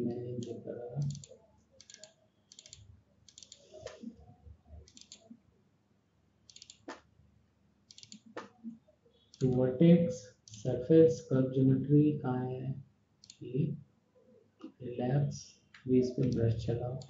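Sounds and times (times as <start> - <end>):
low murmur: 0.0 - 1.2
mouse and keyboard clicks: 0.4 - 4.2, 4.9 - 5.3, 6.5 - 7.1, 7.9 - 9.6, 13.2 - 13.4.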